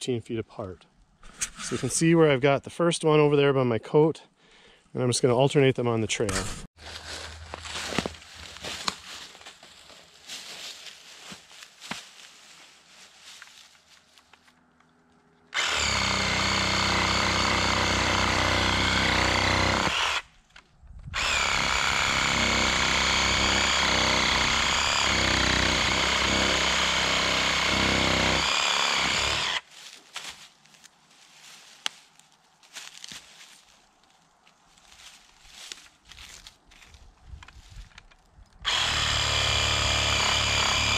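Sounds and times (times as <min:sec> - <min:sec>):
cordless power tool running: 0:15.5 - 0:20.2, 0:21.2 - 0:29.6, 0:38.6 - 0:40.9.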